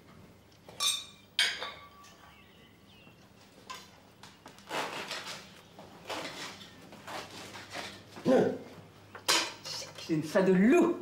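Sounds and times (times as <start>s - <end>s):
dishes and utensils clattering: 0.7s - 2.2s, 9.2s - 10.1s.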